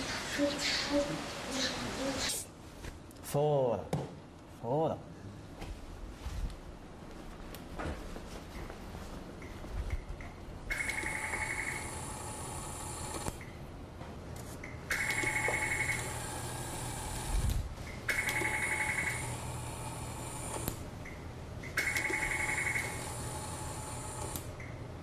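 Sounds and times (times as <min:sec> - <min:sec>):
steady machine hum: 0:04.2 - 0:25.0
electronic buzzing beep: 0:10.8 - 0:12.1, 0:15.0 - 0:16.4, 0:21.8 - 0:23.2.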